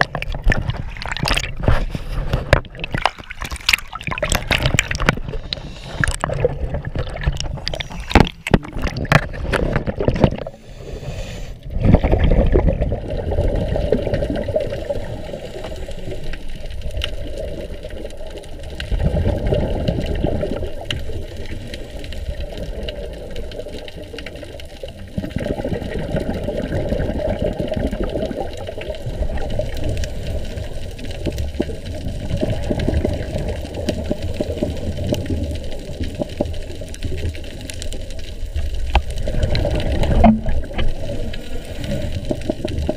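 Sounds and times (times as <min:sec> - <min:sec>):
diver breathing and exhaling bubbles: 0:00.0 - 0:42.9
muffled underwater rush: 0:00.0 - 0:42.9
water splashing and sloshing: 0:00.0 - 0:42.9.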